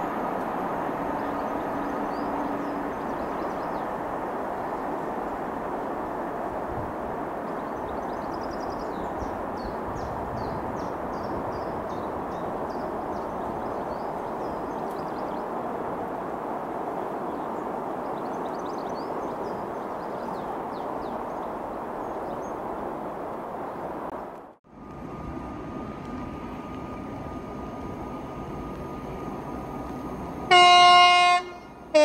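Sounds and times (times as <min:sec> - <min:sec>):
small birds chirping: 0:01.1 - 0:05.4, 0:07.4 - 0:15.6, 0:17.0 - 0:22.7.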